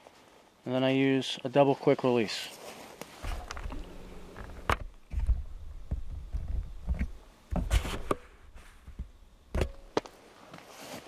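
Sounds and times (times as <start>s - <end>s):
camera jostling thuds: 3.2s - 10.0s
rope rustling and scraping: 10.0s - 11.0s.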